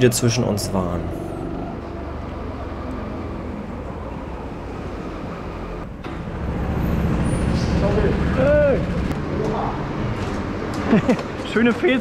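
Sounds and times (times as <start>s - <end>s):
go-kart engine running: 5.3s - 11.6s.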